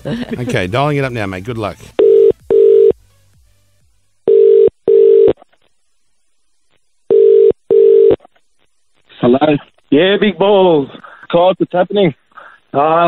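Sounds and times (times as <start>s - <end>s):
phone ringback tone: 2.0s - 3.0s, 4.3s - 5.4s, 7.1s - 8.2s.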